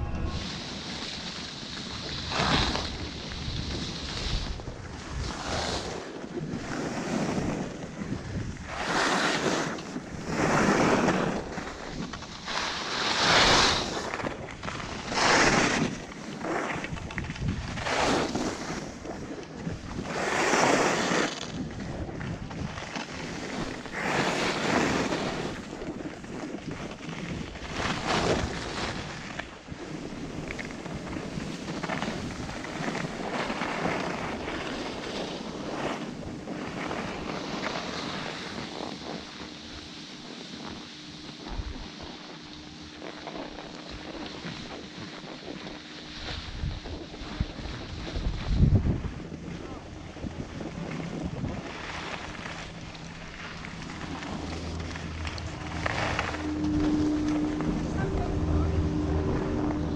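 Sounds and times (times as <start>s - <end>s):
skis scraping over snow: 0.0s - 59.9s
wind buffeting microphone: 0.0s - 59.9s.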